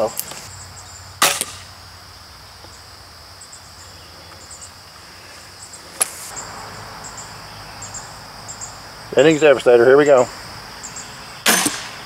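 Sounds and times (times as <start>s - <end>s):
crickets and insects buzzing: 0.0s - 12.0s
crossbow firing snap: 1.2s - 1.6s, 6.0s - 6.3s, 11.4s - 12.0s.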